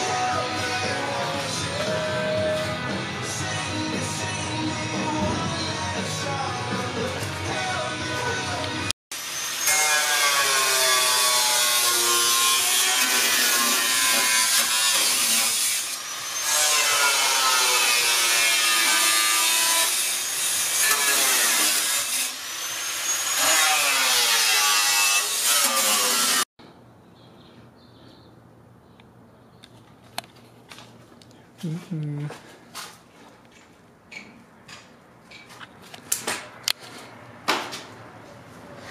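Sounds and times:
angle grinder cutting sheet steel: 9.1s - 26.5s.

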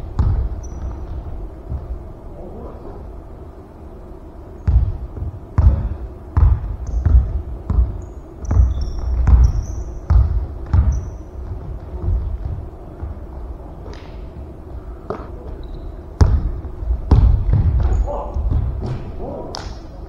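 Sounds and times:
basketball bouncing on wooden floor: 0.0s - 2.0s, 4.6s - 14.1s, 15.1s - 19.1s
sneaker squeaks: 0.2s - 1.8s, 6.7s - 13.1s, 15.1s - 16.2s.

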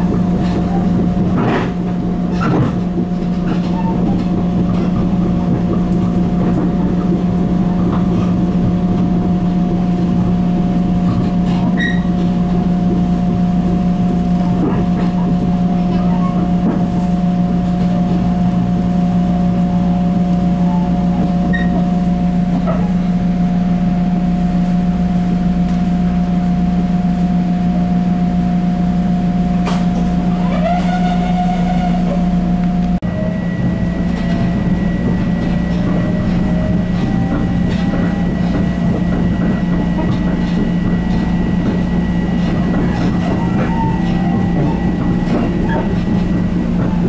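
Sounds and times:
train interior hum and whine: 0.0s - 47.0s
train squeal: 3.5s - 4.3s, 11.5s - 12.3s, 20.5s - 23.0s, 30.3s - 47.0s.

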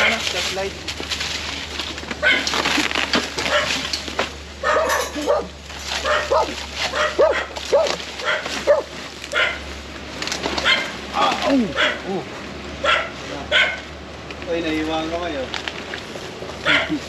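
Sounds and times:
scraping and knocking in debris: 0.2s - 9.3s
small dog barking: 2.2s - 2.4s, 3.5s - 3.7s, 4.6s - 9.6s, 10.6s - 11.0s, 11.7s - 12.1s, 12.8s - 13.9s, 16.6s - 17.0s.

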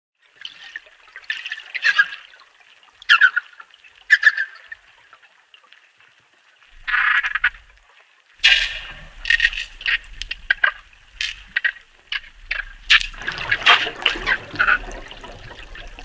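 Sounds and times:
dolphins high-pitched calls: 6.8s - 7.7s.

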